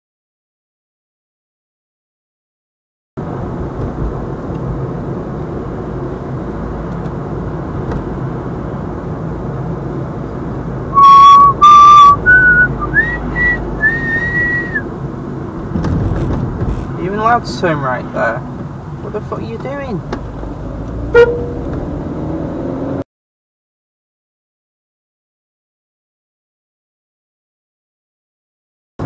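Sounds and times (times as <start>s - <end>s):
car cabin noise: 9.9s - 22.3s
person whistling rising notes: 11.0s - 14.9s.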